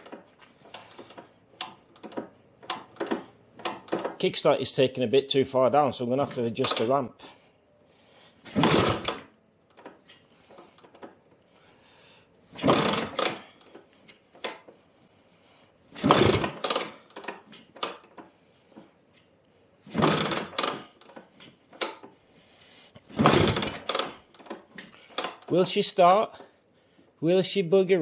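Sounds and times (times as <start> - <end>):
scooter kickstart metallic clatter: 0.0 - 4.2, 6.2 - 6.9, 8.5 - 10.0, 12.6 - 13.6, 16.0 - 18.2, 19.9 - 22.1, 23.1 - 25.6.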